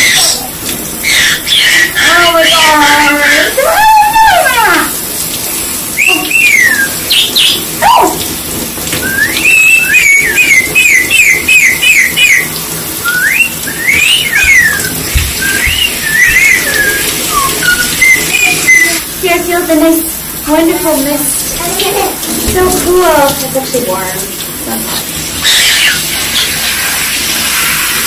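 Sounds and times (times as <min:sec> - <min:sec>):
shower water running: 0:00.0 - 0:28.0
person whistling: 0:09.0 - 0:10.3, 0:13.0 - 0:19.0.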